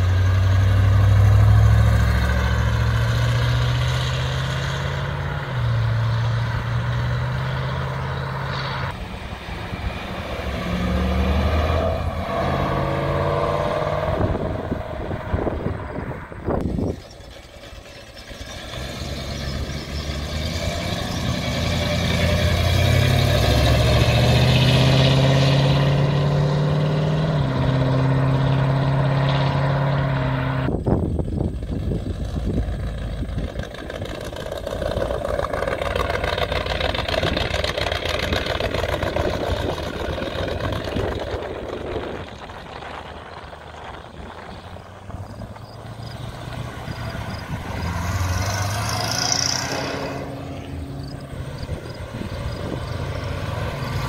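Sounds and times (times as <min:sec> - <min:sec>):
hot rod engines accelerating past: 0:00.0 - 0:54.0
rough car exhaust passing: 0:00.0 - 0:54.0.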